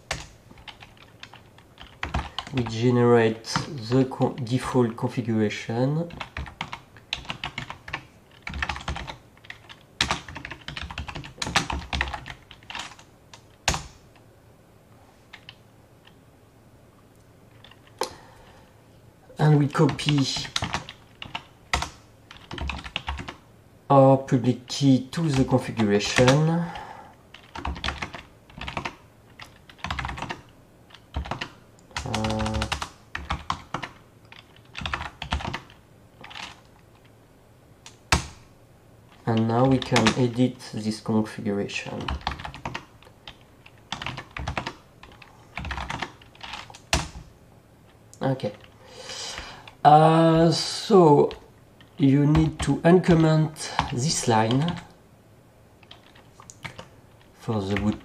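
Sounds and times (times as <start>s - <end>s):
typing on computer keyboard: 0.1s - 2.7s, 6.1s - 14.0s, 19.9s - 23.4s, 27.3s - 36.6s, 37.8s - 38.4s, 39.2s - 40.3s, 41.9s - 47.2s, 55.8s - 56.9s.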